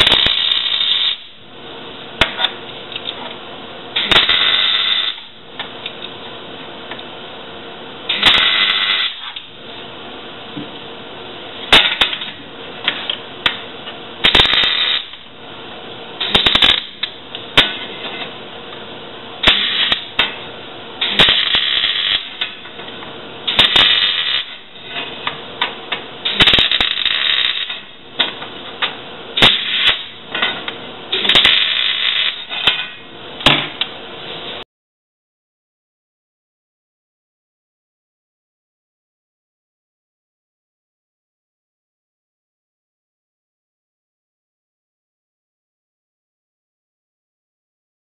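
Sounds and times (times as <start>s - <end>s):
arc welder crackling bursts: 0.0s - 1.4s, 3.9s - 5.4s, 8.1s - 9.5s, 11.7s - 12.2s, 14.2s - 15.4s, 16.1s - 17.8s, 19.4s - 22.7s, 23.4s - 24.8s, 26.2s - 28.2s, 29.2s - 30.3s, 31.0s - 33.5s.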